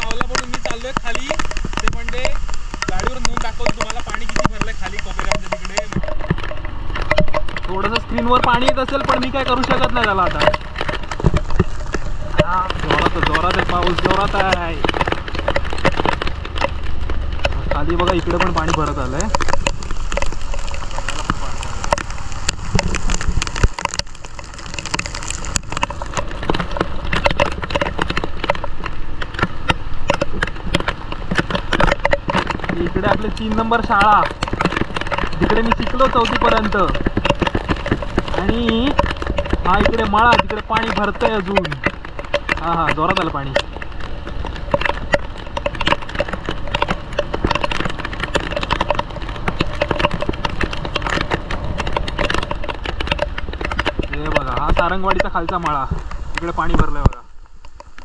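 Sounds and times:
muffled engine and wind rumble: 0.0s - 58.0s
raindrops ticking on camera case: 0.0s - 58.0s.

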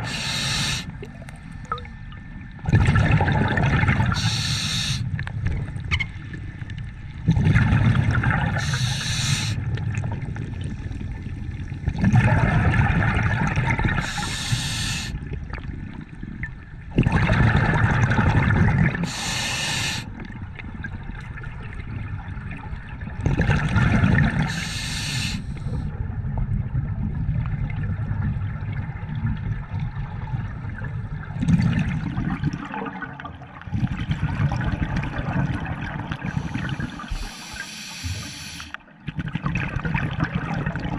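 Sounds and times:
regulator hissing on inhale: 0.0s - 1.0s, 4.1s - 5.2s, 8.6s - 9.6s, 14.0s - 15.2s, 19.0s - 20.2s, 24.5s - 25.8s, 36.3s - 38.8s
exhaled bubbles rushing: 0.0s - 4.4s, 7.2s - 19.4s, 20.3s - 24.7s, 26.0s - 38.3s, 39.0s - 40.9s.

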